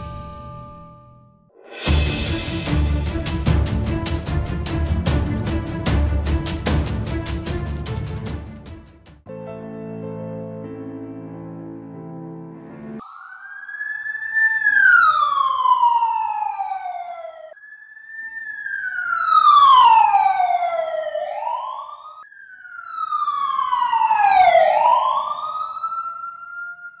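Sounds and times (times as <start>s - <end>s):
whine gliding downward: 13.0s - 27.0s.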